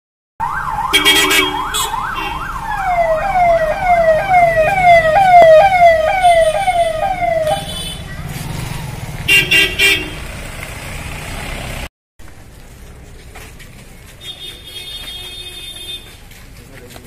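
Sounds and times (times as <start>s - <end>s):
electronic siren sweeping: 0.4s - 7.7s
car horn honking: 0.9s - 2.6s, 3.6s - 8.2s, 9.3s - 10.4s, 14.2s - 16.1s.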